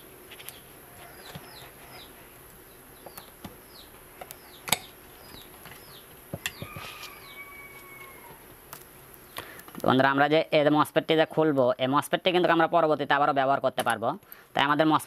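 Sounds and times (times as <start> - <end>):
bird chirping: 0.4 - 8.4.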